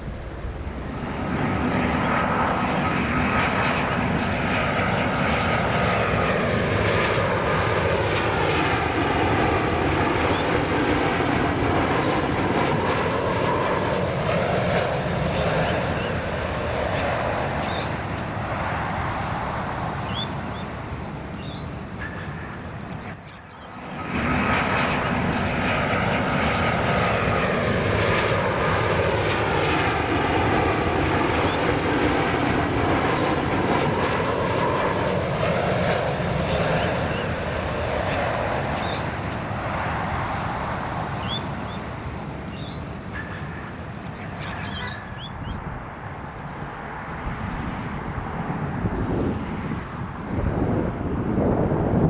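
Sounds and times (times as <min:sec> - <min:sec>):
jet airliner engines rumbling: 0:00.0 - 0:52.0.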